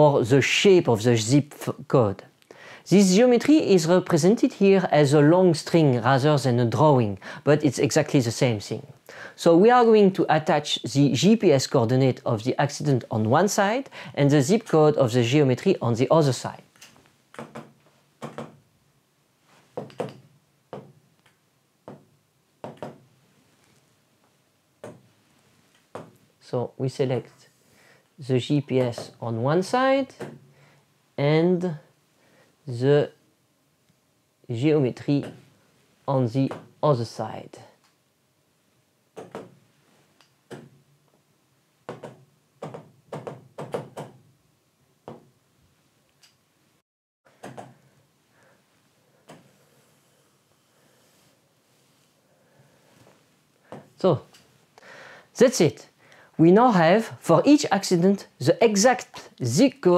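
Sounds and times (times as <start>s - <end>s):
stylus tapping on touchscreen: 17.3s - 18.6s, 21.8s - 23.0s, 39.2s - 39.5s.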